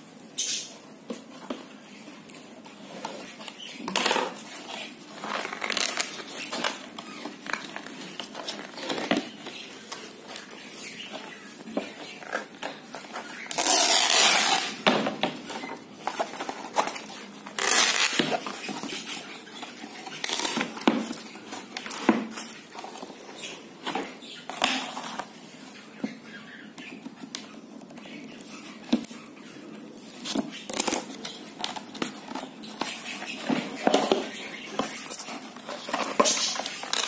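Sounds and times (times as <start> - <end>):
canvas tearing: 13.5 - 14.8, 17.6 - 18.2.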